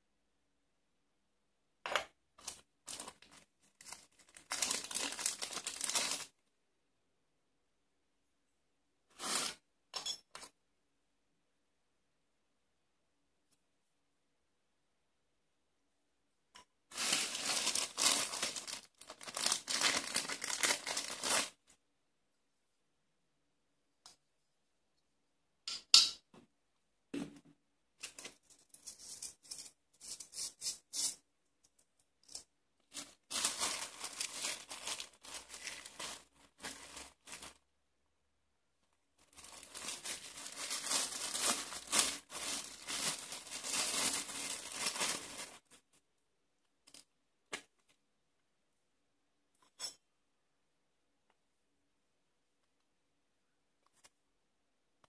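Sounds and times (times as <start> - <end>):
plastic bag crinkling: 2.4 - 6.4, 16.9 - 21.6, 32.2 - 37.6, 39.2 - 45.8.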